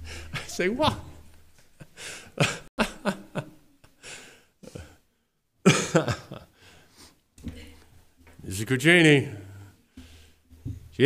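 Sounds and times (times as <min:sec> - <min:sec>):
man's stifled laughter: 0:01.8 - 0:03.6, 0:05.7 - 0:06.5.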